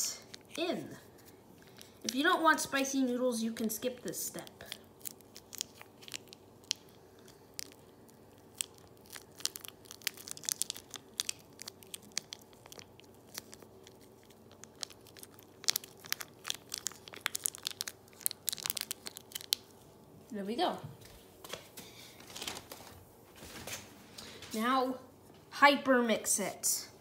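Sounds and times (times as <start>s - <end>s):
faint steady hum: 0.0s - 27.0s
plastic sachet crinkling: 3.6s - 19.9s, 22.2s - 22.9s.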